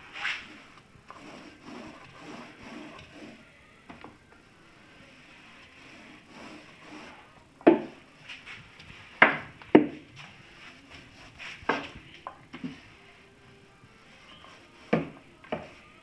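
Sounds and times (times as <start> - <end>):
paint roller knocking on wood: 6.4 - 8.0, 9.2 - 10.1, 11.6 - 12.8, 14.8 - 15.8.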